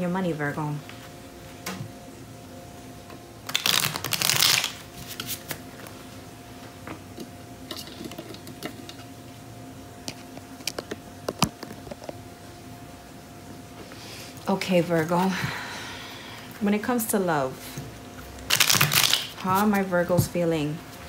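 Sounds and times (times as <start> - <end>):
faint steady hum: 0.0 - 21.0
cards riffling: 3.4 - 5.6, 18.5 - 19.4.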